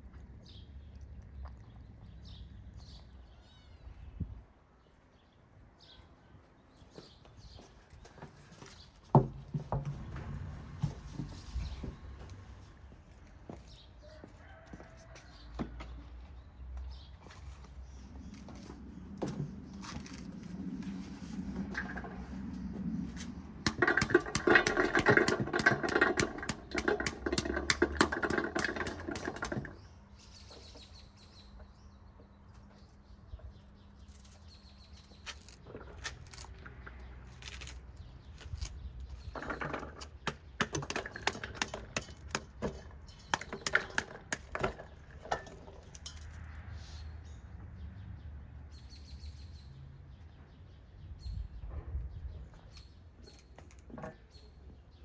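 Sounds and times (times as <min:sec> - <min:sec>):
small birds chirping: 0:00.0 - 0:09.7, 0:11.2 - 0:55.0
pomegranate tearing apart: 0:35.0 - 0:38.8.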